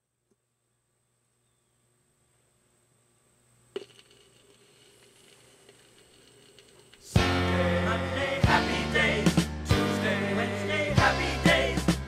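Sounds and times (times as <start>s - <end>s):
vinyl record surface crackle: 3.7s - 7.2s.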